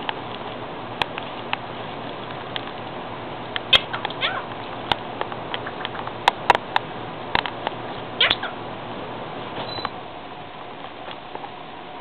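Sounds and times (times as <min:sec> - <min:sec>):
parakeet talking: 0:03.7 - 0:04.5, 0:08.2 - 0:08.6.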